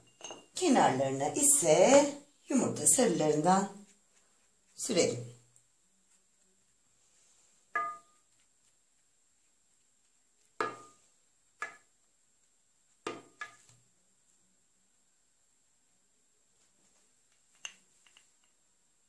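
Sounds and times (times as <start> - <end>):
brush clinking against dishes: 0.0 - 0.6, 7.8 - 8.4.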